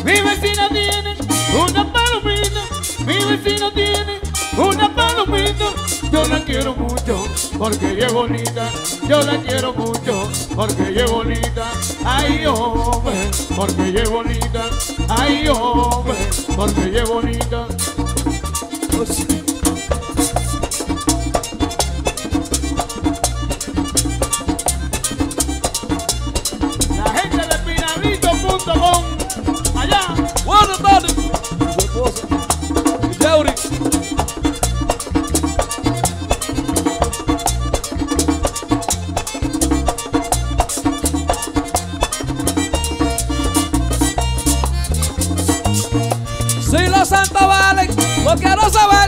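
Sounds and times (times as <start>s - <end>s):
accordion melody: 0.0s - 49.0s
scraped guira: 0.0s - 49.0s
drum beat: 26.7s - 41.8s.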